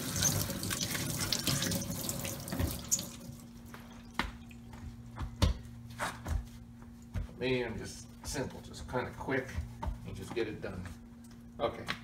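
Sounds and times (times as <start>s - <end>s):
faucet sprayer running into sink: 0.0s - 3.4s
low steady hum: 0.0s - 12.0s.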